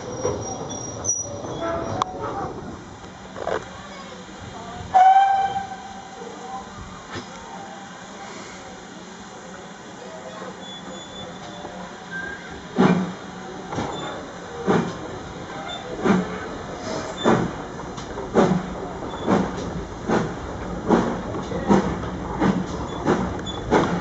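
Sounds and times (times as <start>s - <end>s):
steam locomotive chuffing: 0.0s - 24.0s.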